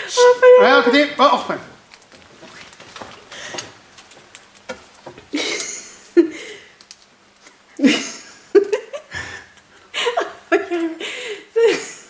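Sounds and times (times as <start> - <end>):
small clicks and rustles: 1.8 - 5.8, 6.4 - 7.6
stifled laughter: 7.8 - 12.0.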